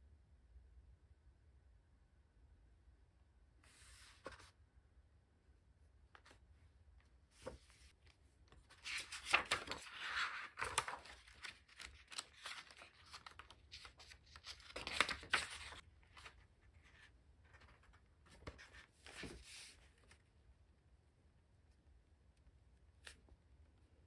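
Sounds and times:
paper pages rustling: 0:03.6 - 0:04.5, 0:07.4 - 0:20.2
small paper clicks and scuffs: 0:07.4 - 0:16.4.

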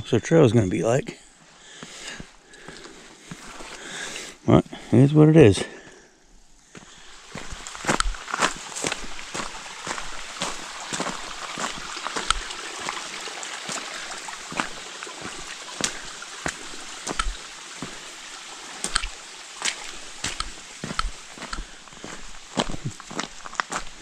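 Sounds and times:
footsteps through mud and water: 0:01.8 - 0:04.3, 0:06.7 - 0:24.0
running water: 0:06.7 - 0:24.0.

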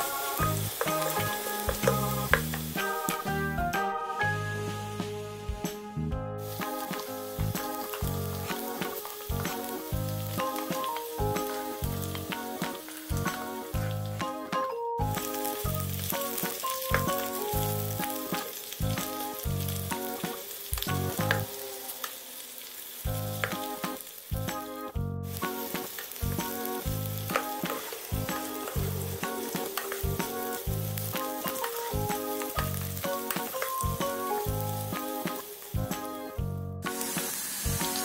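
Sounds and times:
oil sizzling in a pan: 0:00.0 - 0:05.8, 0:06.4 - 0:38.0
background music with steady beat: 0:00.0 - 0:21.4, 0:23.1 - 0:38.0.

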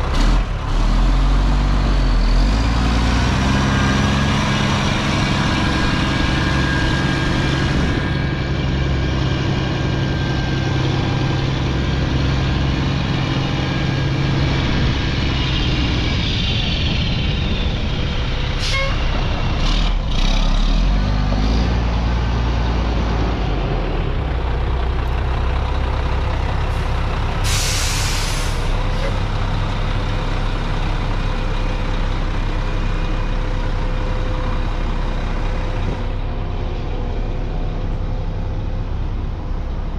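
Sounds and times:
diesel truck engine running: 0:00.0 - 0:39.9
air hiss: 0:27.4 - 0:28.7.

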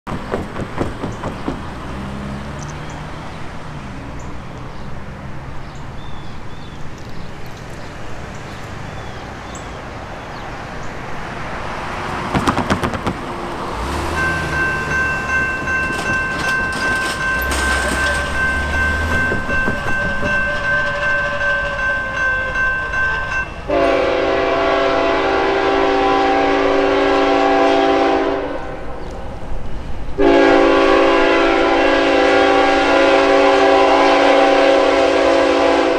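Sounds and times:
locomotive horn blast: 0:13.7 - 0:29.0, 0:30.2 - 0:35.9
railroad crossing bell ringing: 0:13.8 - 0:25.7.

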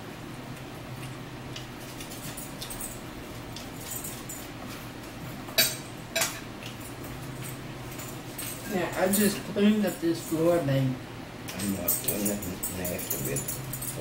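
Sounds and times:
low steady hum: 0:00.0 - 0:14.0
fork clinking against plate: 0:05.6 - 0:06.5.

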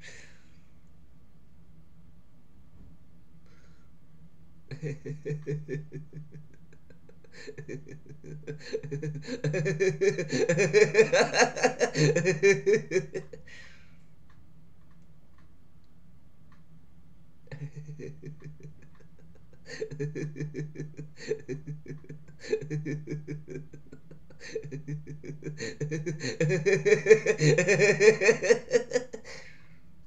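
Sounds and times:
person laughing: 0:04.7 - 0:13.5, 0:17.5 - 0:29.6.

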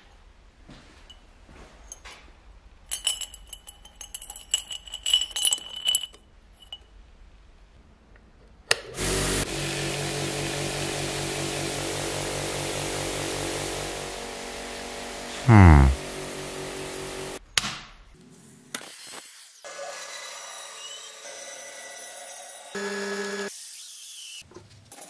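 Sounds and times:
metal parts clinking in glass jar: 0:02.9 - 0:06.9.

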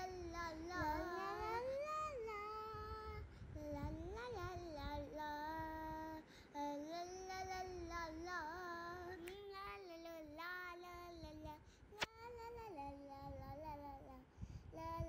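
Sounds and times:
high voice singing slow melody: 0:00.0 - 0:15.0.

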